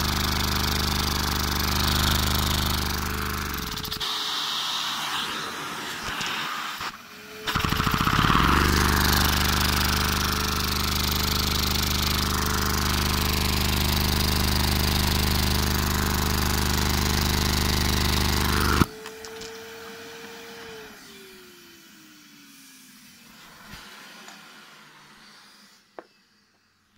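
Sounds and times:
toy engine buzzing rattle: 0.0 - 4.0, 7.5 - 19.6
vacuum cleaner whine: 0.0 - 26.9
rush of air: 3.8 - 7.1.

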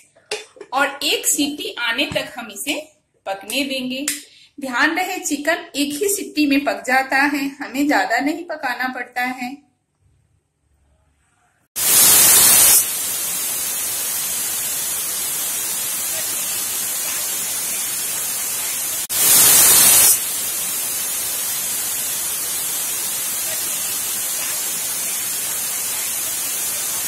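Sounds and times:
pressure cooker hissing: 11.8 - 27.0.

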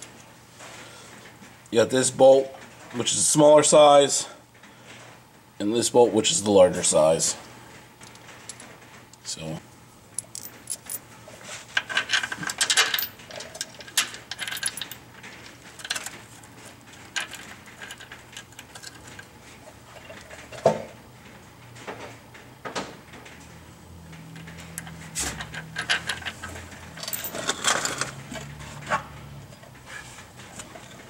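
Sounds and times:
metal bolts clinking: 11.8 - 15.0, 24.4 - 28.5.

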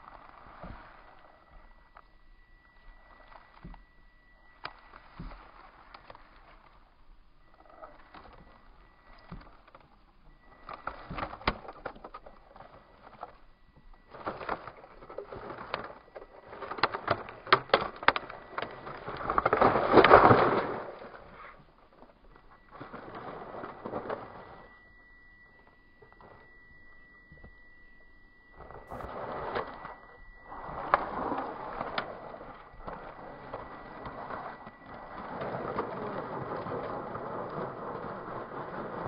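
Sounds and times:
faint high whine: 0.0 - 39.0
tyres crunching through snow and reeds: 10.3 - 24.7, 28.6 - 39.0.

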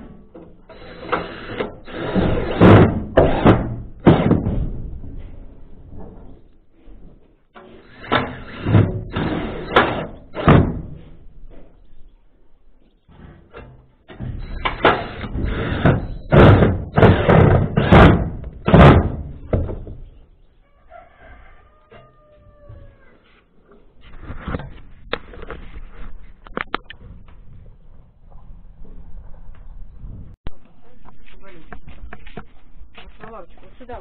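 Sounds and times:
metallic knocks and bangs: 0.1 - 6.4, 7.5 - 11.2, 13.1 - 20.1.

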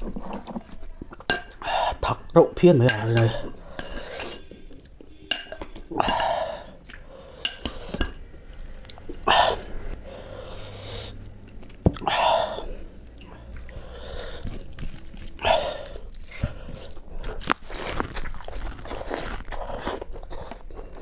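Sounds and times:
chewing: 0.0 - 2.2, 11.5 - 21.0
spoon clicking on glass bowl: 5.3 - 5.7.

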